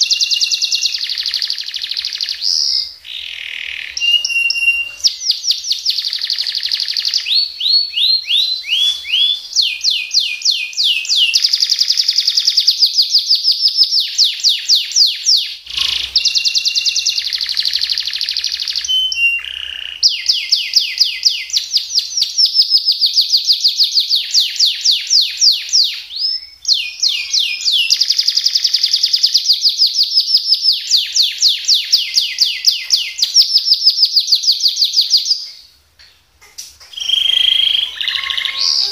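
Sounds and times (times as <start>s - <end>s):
canary singing trills: 0.0s - 38.9s.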